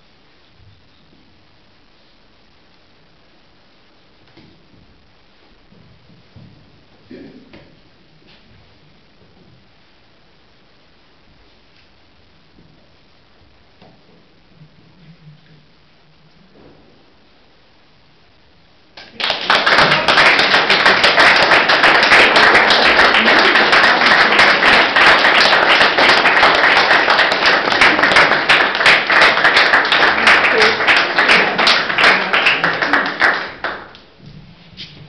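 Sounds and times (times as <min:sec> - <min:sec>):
audience applauding: 0:19.0 - 0:34.1.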